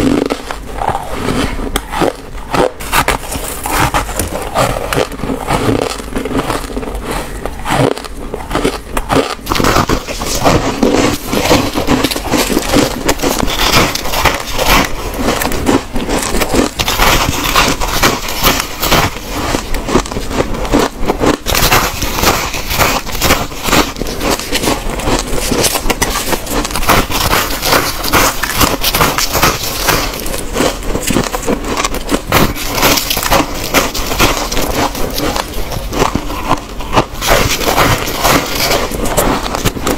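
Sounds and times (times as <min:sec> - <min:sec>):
frost being bitten and chewed: 0:00.0 - 0:39.9
metal scraper scraping frost: 0:09.2 - 0:19.5.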